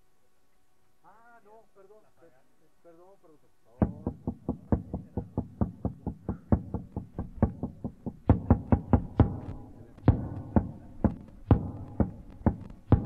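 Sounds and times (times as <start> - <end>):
fast knocking percussion music: 3.8 - 13.0.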